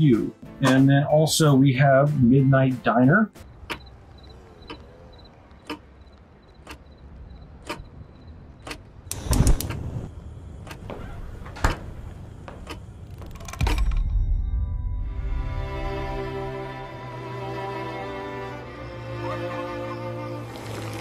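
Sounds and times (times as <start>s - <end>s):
sharp ticks: 4.6s - 9.8s.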